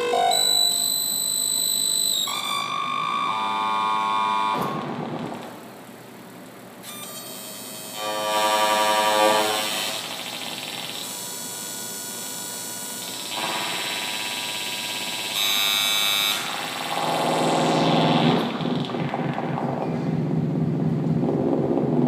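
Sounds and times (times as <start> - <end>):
piercing high tone: 0.0 - 4.9
buzzing electronic tones: 0.0 - 5.5, 6.8 - 21.9
low dense drone: 16.1 - 22.0.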